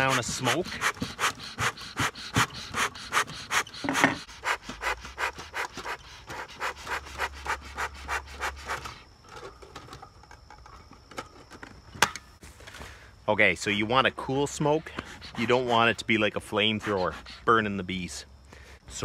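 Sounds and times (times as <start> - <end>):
bellows pumping puffs of air: 0.0 - 9.1, 14.5 - 17.7.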